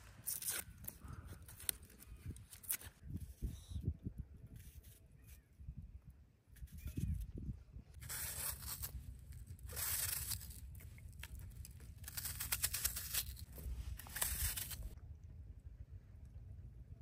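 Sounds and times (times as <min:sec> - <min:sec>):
low rumble: 0:13.4 - 0:17.0.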